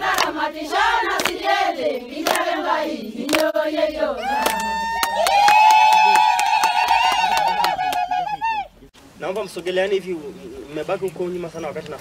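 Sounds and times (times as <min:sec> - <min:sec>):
hand claps: 0:00.0 - 0:00.4, 0:01.1 - 0:01.5, 0:02.2 - 0:02.6, 0:03.2 - 0:03.5, 0:04.3 - 0:08.1
women singing together: 0:00.0 - 0:05.2.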